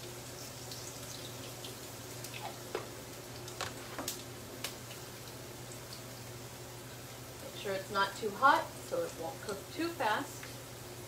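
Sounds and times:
garlic frying in hot oil: 0.0 - 11.0.

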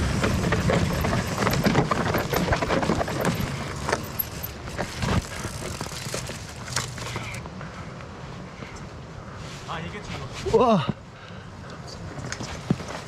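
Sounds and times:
bike tyres knocking on stone: 0.0 - 6.4
chain and frame rattling: 0.0 - 7.4.

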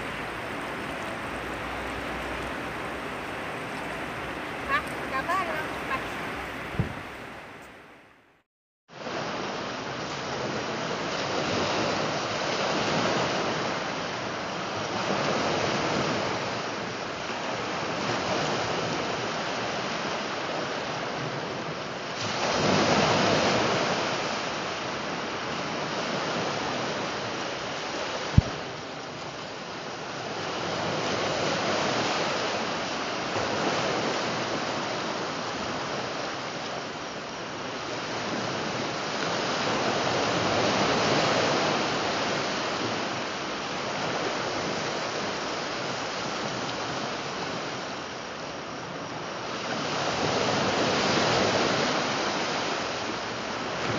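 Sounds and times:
wind on microphone: 0.0 - 8.2
small waves breaking on beach: 0.0 - 8.4, 9.0 - 53.9.

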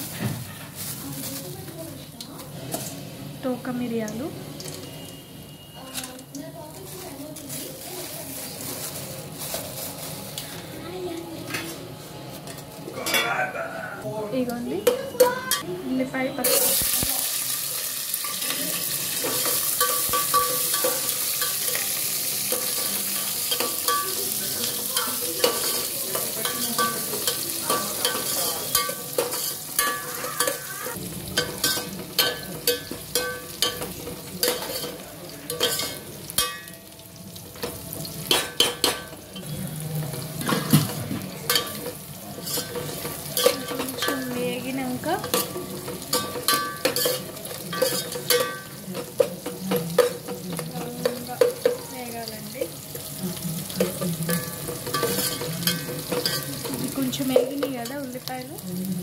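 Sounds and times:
onions sizzling in oil: 0.0 - 11.1, 11.7 - 59.0.

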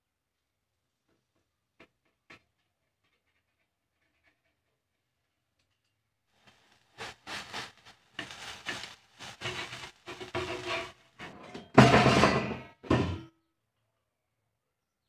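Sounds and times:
knife scraping frying pan: 6.5 - 13.2.

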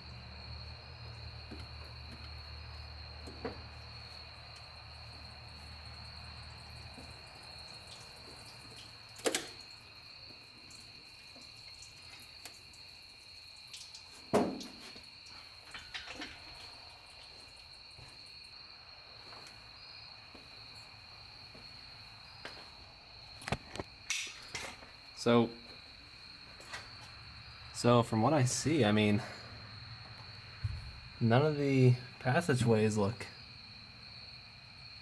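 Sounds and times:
crickets chirping: 0.0 - 35.0
metal knocks and clunks: 14.3 - 14.9.

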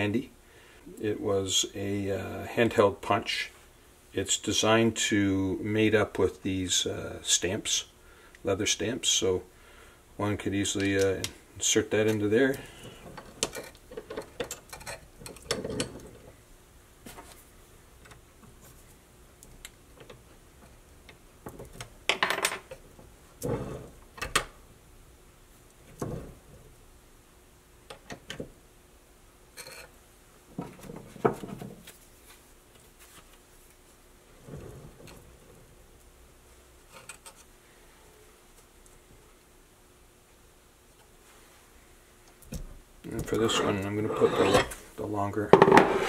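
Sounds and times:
metal tooling clicks and knocks: 13.1 - 16.3.

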